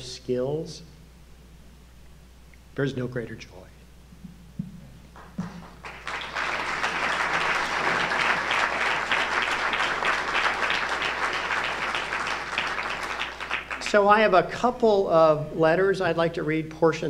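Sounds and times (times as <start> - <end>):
audience applauding: 5.2 - 14.1.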